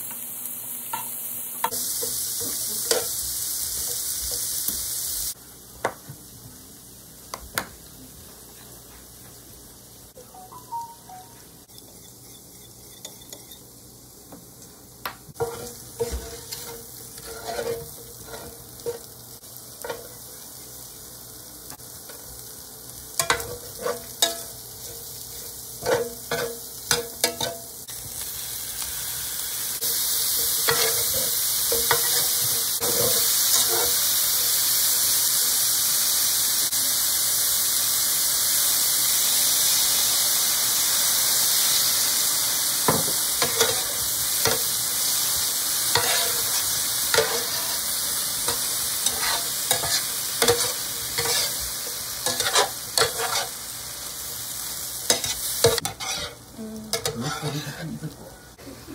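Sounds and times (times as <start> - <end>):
shrimp sizzling in skillet: 0.0 - 58.6
utensils scraping a pan: 15.4 - 19.1, 23.2 - 26.6, 30.4 - 34.0, 43.4 - 44.7, 45.9 - 47.8, 48.5 - 51.6, 52.2 - 53.6, 55.1 - 57.8.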